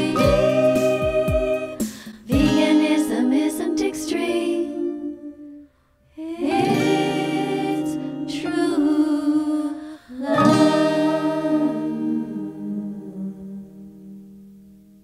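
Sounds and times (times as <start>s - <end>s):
instrumental accompaniment: 0.0s - 3.3s
person singing: 0.0s - 5.6s, 6.2s - 14.2s.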